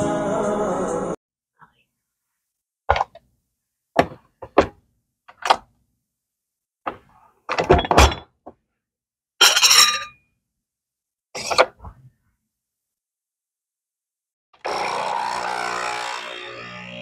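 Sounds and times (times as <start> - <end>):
knocks and clatters: 2.9 - 3.2, 4.0 - 5.6, 6.9 - 8.6.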